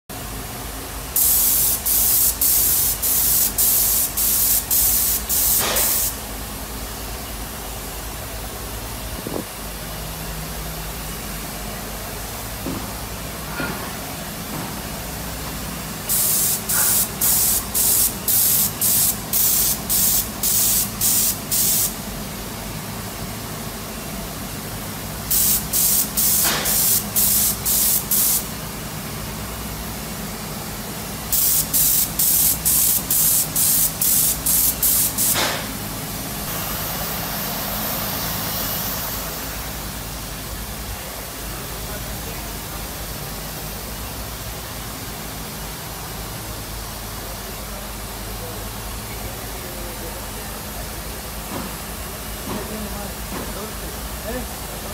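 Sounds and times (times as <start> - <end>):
spray gun hissing: 1.2 - 6.2, 16.1 - 22.0, 25.3 - 28.5, 31.3 - 35.8.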